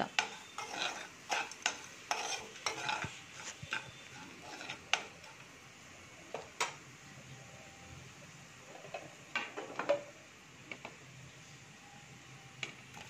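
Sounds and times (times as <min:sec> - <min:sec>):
faint sizzle: 0:00.0 - 0:13.0
metal spoon scraping a pan: 0:00.1 - 0:05.5.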